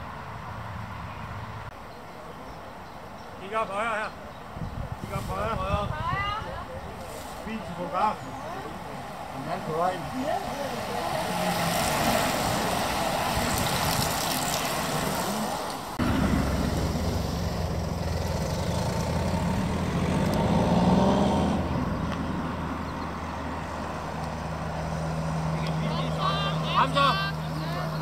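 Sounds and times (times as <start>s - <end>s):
bicycle tyres on asphalt: 4.9s - 21.0s
motor vehicle engine running: 7.6s - 28.0s.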